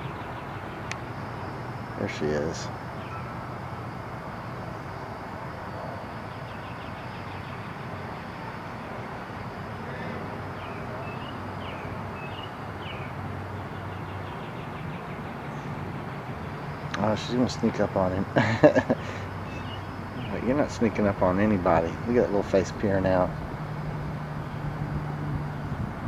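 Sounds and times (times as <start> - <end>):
steady low hum: 0.0 - 26.0
bird chirps: 2.9 - 3.5, 10.5 - 15.8, 18.7 - 23.4.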